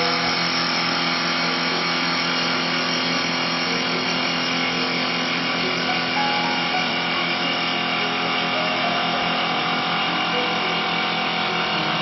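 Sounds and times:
lathe blades cutting wood: 0.0s - 12.0s
machine motors humming: 0.0s - 12.0s.

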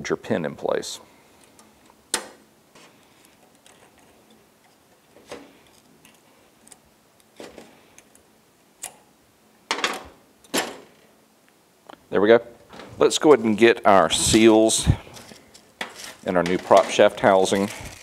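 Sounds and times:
metallic clicks of steel parts: 8.8s - 9.1s.

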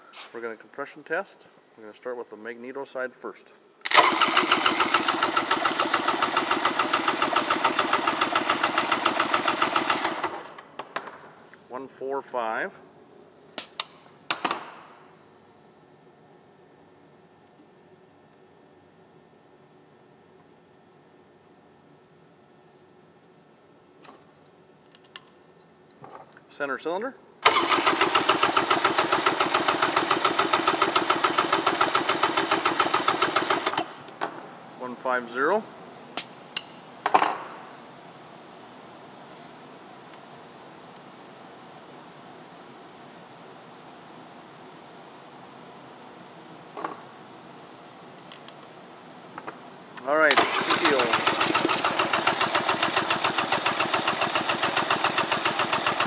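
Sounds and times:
engine cranking by starter: 3.9s - 10.5s, 27.4s - 33.9s, 50.2s - 56.0s.

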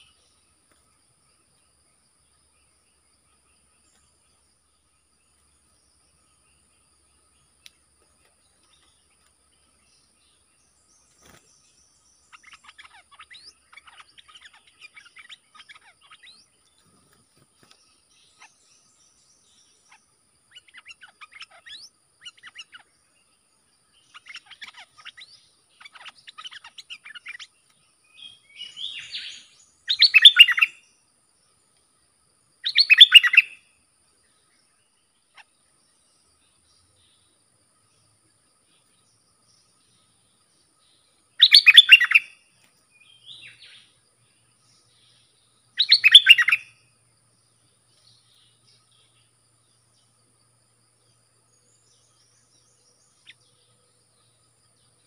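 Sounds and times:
loud bird calls: 0.0s - 0.5s, 7.4s - 30.9s, 32.6s - 33.7s, 38.8s - 46.8s
bird chattering chirps: 11.2s - 22.9s, 23.9s - 27.6s, 28.2s - 30.8s, 32.6s - 33.6s, 41.4s - 42.3s, 45.8s - 46.7s.

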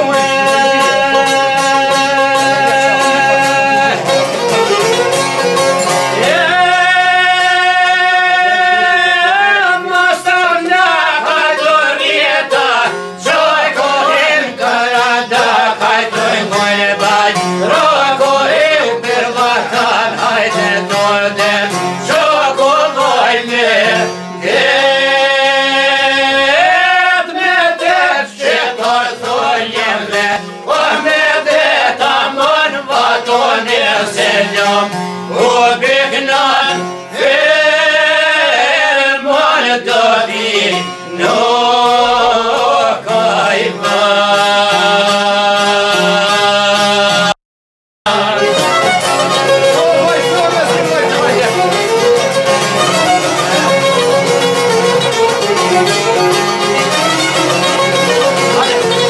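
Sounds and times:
men singing in unison: 0.0s - 4.4s, 6.1s - 47.4s, 48.1s - 49.2s
plucked lutes: 0.0s - 9.0s, 10.1s - 25.9s, 27.8s - 37.7s, 48.1s - 59.0s.

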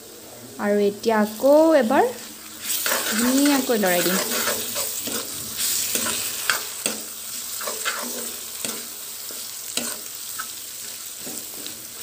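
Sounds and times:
onions sizzling in oil: 0.0s - 12.0s
metal spatula scraping pan: 2.6s - 10.5s.

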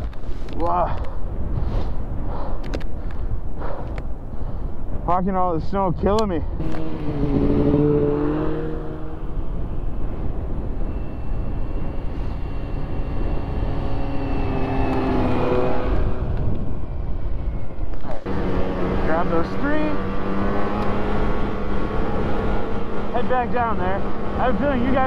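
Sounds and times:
steady low rumble: 0.0s - 7.4s
snowmobile engines passing by: 6.5s - 16.5s, 18.0s - 25.0s.

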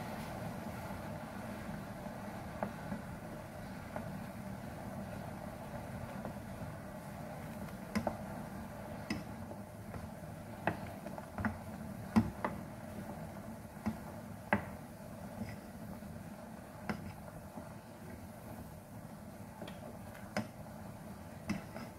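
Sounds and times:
steady low hum: 0.0s - 21.9s
wooden spoon knocking on pot: 9.0s - 12.8s, 13.8s - 14.8s.

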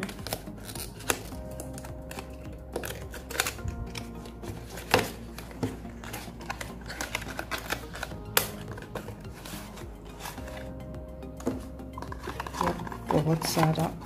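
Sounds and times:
soft background music: 0.0s - 14.0s.

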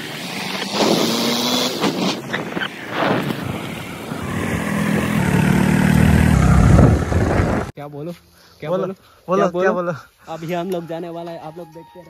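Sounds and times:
wind noise on microphone: 0.2s - 7.7s.

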